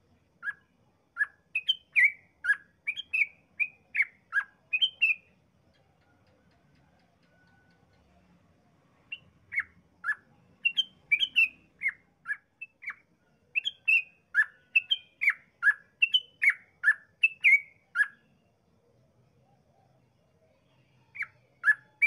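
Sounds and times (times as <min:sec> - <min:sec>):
bird singing fast notes: 0:01.2 - 0:05.3, 0:09.1 - 0:18.2.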